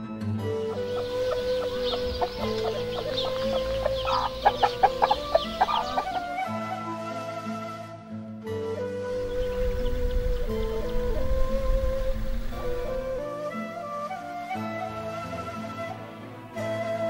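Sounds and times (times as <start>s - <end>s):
background music held notes: 0.0s - 17.0s
chicks peeping: 0.6s - 6.4s, 9.2s - 13.0s
hen clucking: 0.6s - 6.5s.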